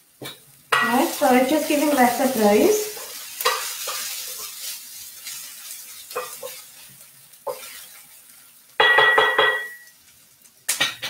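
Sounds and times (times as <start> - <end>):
onions sizzling in a pan: 0.0 - 11.0
spoon scraping and tapping pan: 3.0 - 4.6, 6.0 - 6.6, 8.8 - 9.9.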